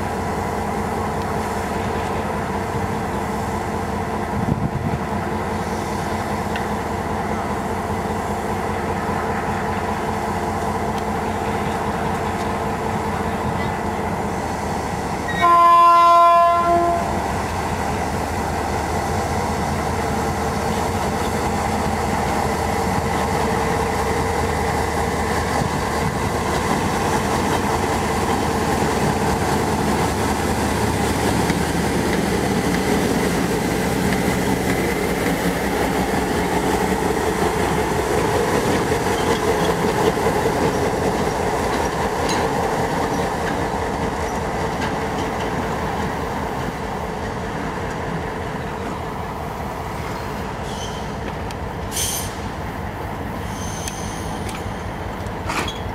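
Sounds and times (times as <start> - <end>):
locomotive horn blast: 15.3 - 17.2.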